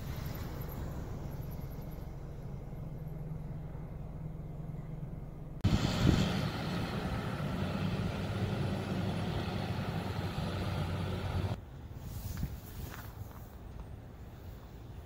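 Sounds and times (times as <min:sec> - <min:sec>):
vehicle engine humming: 0:00.0 - 0:11.6
street noise: 0:00.0 - 0:15.0.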